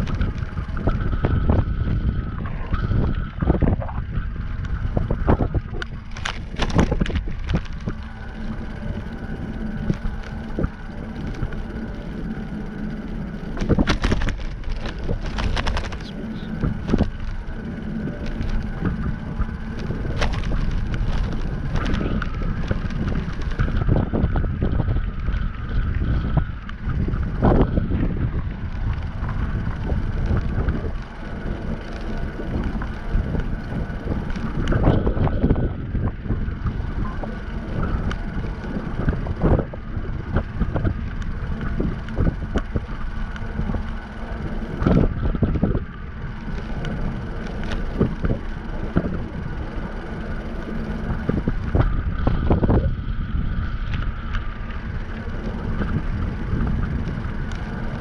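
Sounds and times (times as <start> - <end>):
low road rumble: 0.0 - 58.0
wind on microphone: 0.0 - 58.0.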